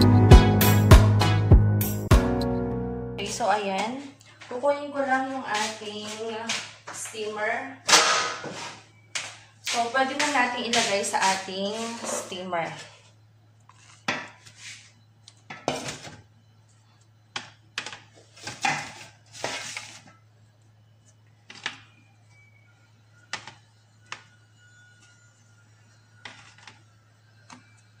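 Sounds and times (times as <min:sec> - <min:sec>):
steady low hum: 0:00.3 - 0:28.0.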